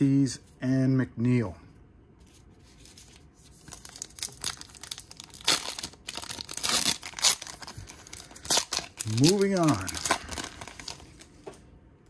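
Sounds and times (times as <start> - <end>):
foil wrapper crinkling and tearing: 2.8 - 11.4.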